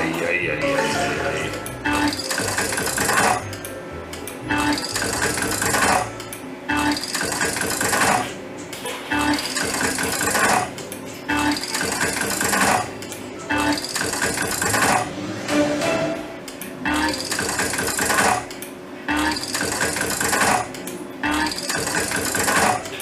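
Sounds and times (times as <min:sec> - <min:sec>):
slot machine reel spinning: 0:00.8 - 0:03.4, 0:04.5 - 0:08.4, 0:09.2 - 0:15.1, 0:16.9 - 0:18.5, 0:19.1 - 0:23.0.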